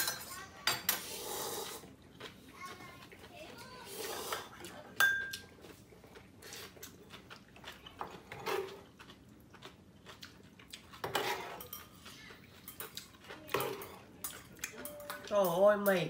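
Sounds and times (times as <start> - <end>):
metal utensils clinking on bowl: 0.0 - 1.2, 4.3 - 5.5, 11.0 - 16.0
slurping and chewing noodles: 1.0 - 14.8.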